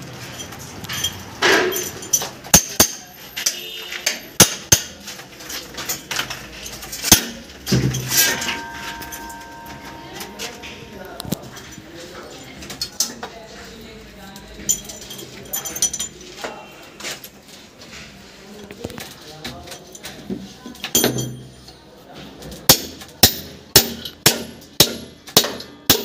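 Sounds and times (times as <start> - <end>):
metallic knocks and clinks: 0.3 - 3.6, 5.8 - 11.8, 14.6 - 16.4, 20.8 - 21.5.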